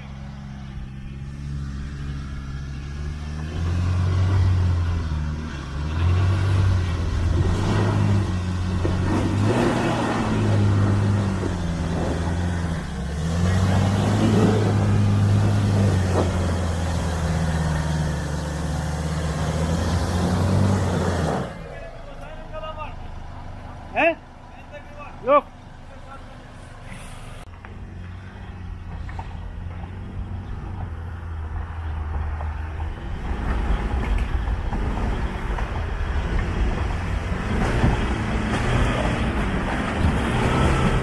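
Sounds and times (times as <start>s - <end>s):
pickup engine revving: 0.0s - 41.0s.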